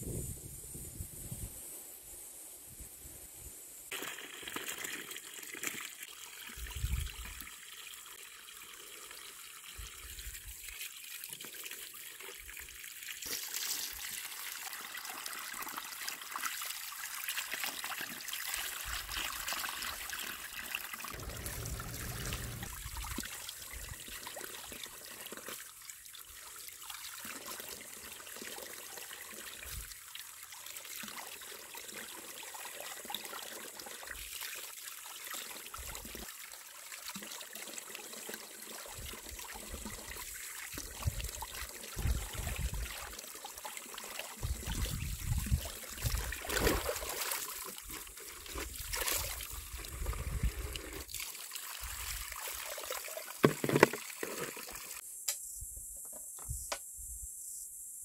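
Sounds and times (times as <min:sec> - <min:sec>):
water splashing into a basin: 0:03.9 - 0:07.9, 0:10.6 - 0:29.2, 0:36.9 - 0:55.0
hands washing fruit in water: 0:46.0 - 0:49.6.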